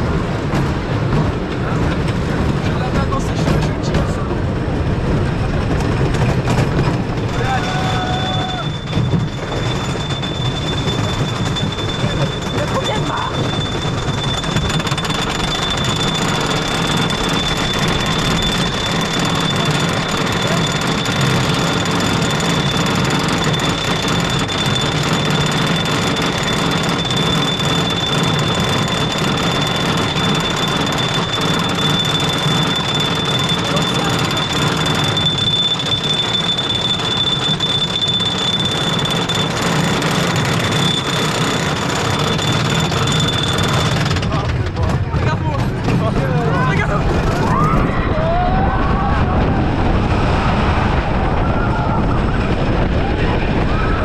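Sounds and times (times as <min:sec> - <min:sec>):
roller coaster lift chain clattering: 0:00.0 - 0:54.0
high-pitched squeal: 0:07.3 - 0:44.1
thin high whine: 0:07.6 - 0:44.1
rushing air: 0:47.9 - 0:54.0.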